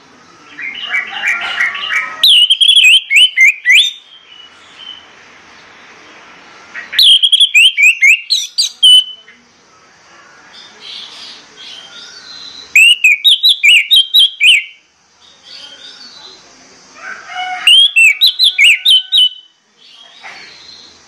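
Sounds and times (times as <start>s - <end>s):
quiet bird twittering: 1.7s - 16.7s
thrush singing whistled notes: 2.2s - 5.2s, 6.8s - 9.3s, 11.7s - 14.9s, 17.6s - 19.6s.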